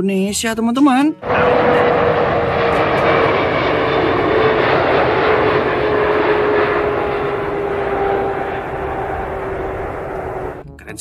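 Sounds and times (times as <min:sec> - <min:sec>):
engine whine gliding down: 0:01.2 - 0:10.6
jet engines running: 0:01.2 - 0:10.6.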